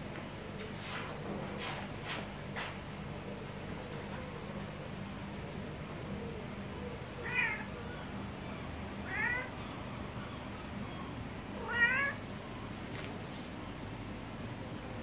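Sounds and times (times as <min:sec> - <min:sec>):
cat meowing: 0:07.2 - 0:07.8, 0:09.0 - 0:09.6, 0:11.6 - 0:12.2.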